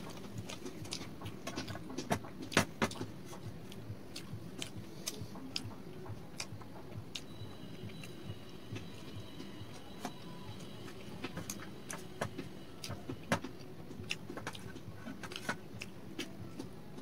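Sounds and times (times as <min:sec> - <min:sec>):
wet chewing: 0:00.0 - 0:16.7
fingers tearing bread: 0:14.0 - 0:16.7.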